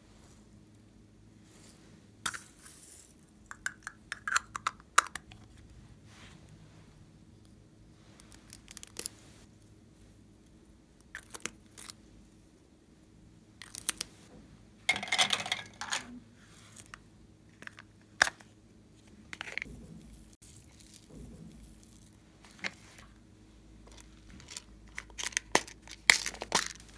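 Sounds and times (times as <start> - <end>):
plastic caps clicking: 3.5 - 5.4.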